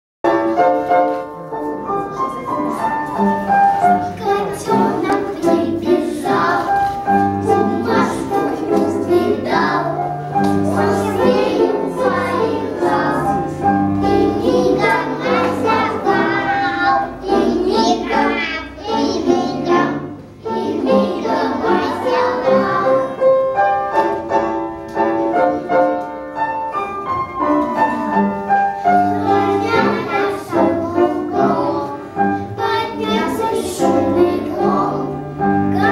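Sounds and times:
musical accompaniment: 0:00.2 - 0:35.9
boys singing together: 0:07.4 - 0:23.1.

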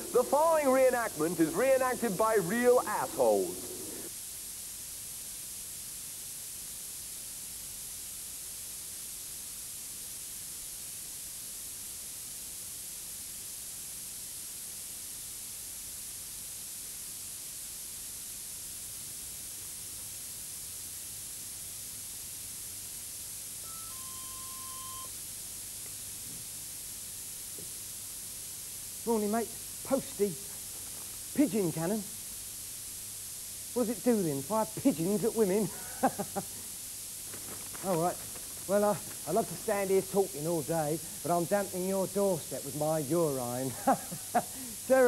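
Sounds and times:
tape hiss: 0:00.0 - 0:45.0
short electronic tones: 0:23.6 - 0:25.2.

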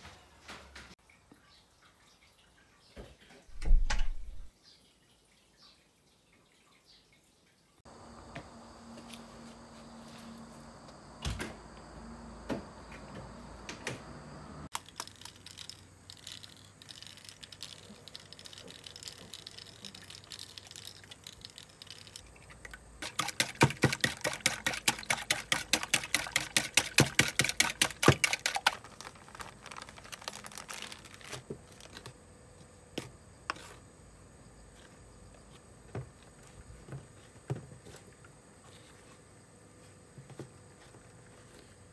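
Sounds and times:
whisk beating eggs in a bowl: 0:23.0 - 0:31.1.

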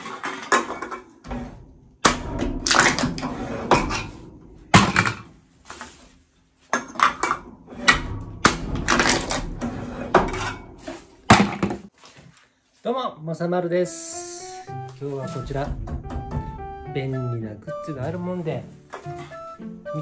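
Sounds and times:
can crusher clanking and crunching: 0:00.0 - 0:05.9, 0:06.7 - 0:11.9.

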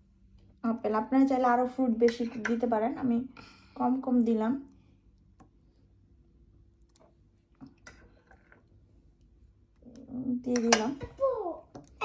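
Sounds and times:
low steady hum: 0:00.0 - 0:12.0
clicks and taps in glass bowl: 0:10.5 - 0:11.0.

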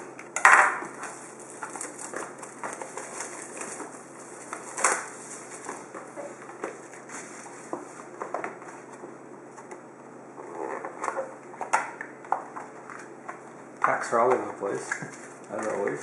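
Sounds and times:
plastic wrap crinkling: 0:00.9 - 0:08.9, 0:14.1 - 0:16.0.

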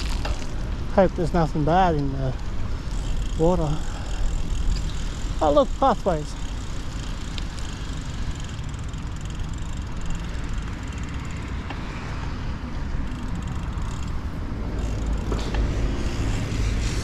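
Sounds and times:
bike tyres on wet path: 0:00.0 - 0:17.0.

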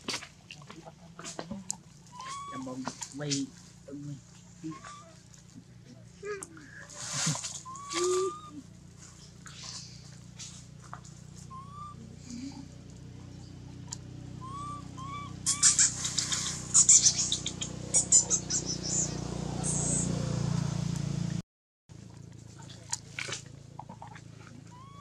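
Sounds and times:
chirping calls: 0:02.1 - 0:02.8, 0:04.6 - 0:05.2, 0:07.6 - 0:09.9, 0:11.4 - 0:12.6, 0:13.2 - 0:20.1, 0:24.7 - 0:25.0.

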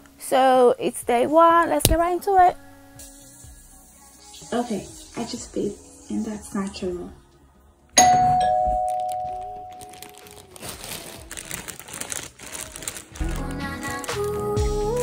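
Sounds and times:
background music: 0:00.0 - 0:15.0
two-note doorbell chime: 0:08.0 - 0:10.0
rustling: 0:08.7 - 0:14.6.

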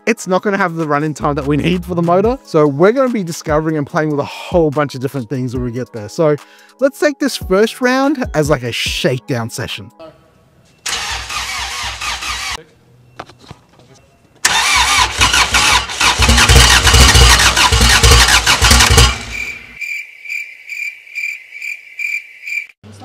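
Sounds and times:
engine starter cranking: 0:10.9 - 0:12.6, 0:14.4 - 0:19.7.

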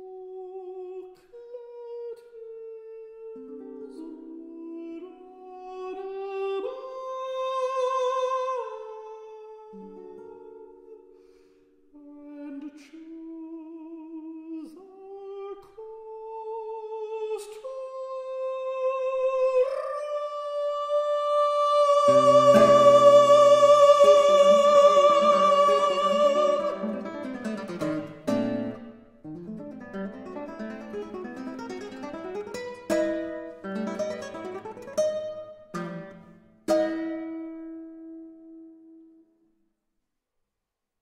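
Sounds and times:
counter-tenor singing: 0:18.4 - 0:28.8
guitar plucked chords: 0:21.9 - 0:39.1.

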